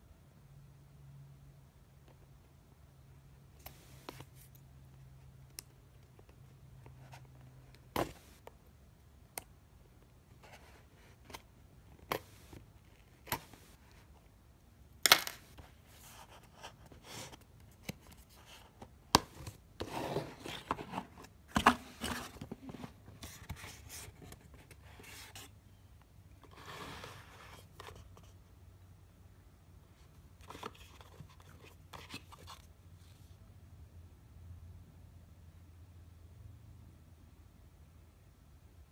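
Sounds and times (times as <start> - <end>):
cardboard scraping and rustling: 19.2 - 25.5.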